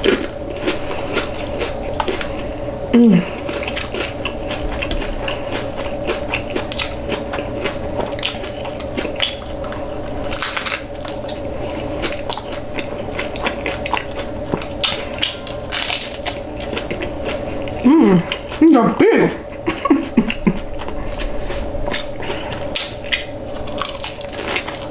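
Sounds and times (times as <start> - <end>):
chewing crunchy tacos: 0.0 - 24.9.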